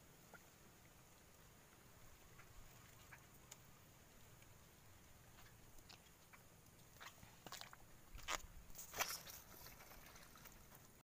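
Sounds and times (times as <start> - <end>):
flip-flop footsteps on a log: 7.0 - 10.6.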